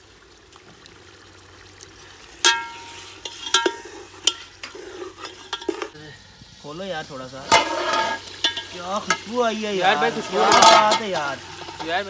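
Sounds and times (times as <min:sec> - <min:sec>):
chicken sizzling in a pot: 0:00.0 - 0:12.0
spoon and lid clanking on pot: 0:02.4 - 0:06.0, 0:07.5 - 0:09.3, 0:10.2 - 0:12.0.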